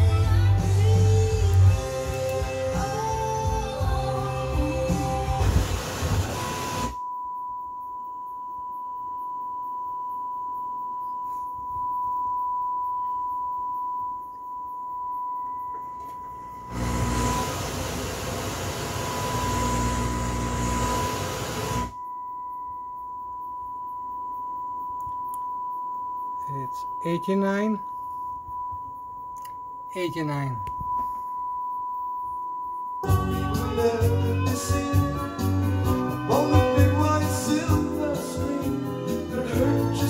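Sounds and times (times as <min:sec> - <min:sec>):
static hiss and rumble: 0:01.1 - 0:07.0, 0:16.7 - 0:22.0
steady test tone: 0:06.2 - 0:34.0.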